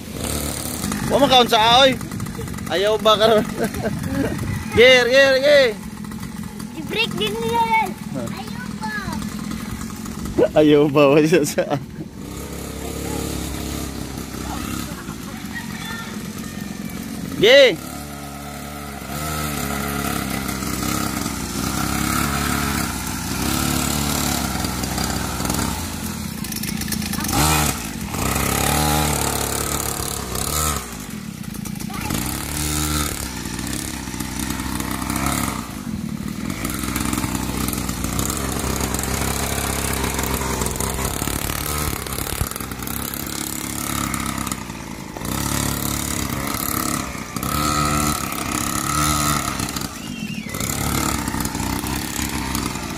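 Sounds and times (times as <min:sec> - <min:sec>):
dirt bike engine revving: 0:00.0 - 0:52.9.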